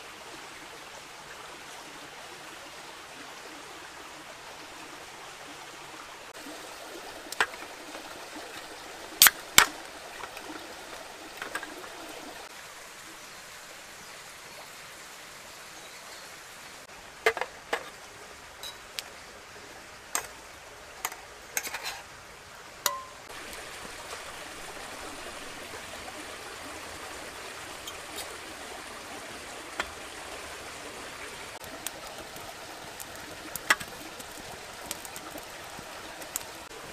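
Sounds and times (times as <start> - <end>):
rushing outdoor hiss: 0.0 - 36.9
camp gear clicking and knocking: 7.4 - 10.6, 11.4 - 11.9, 17.2 - 18.0.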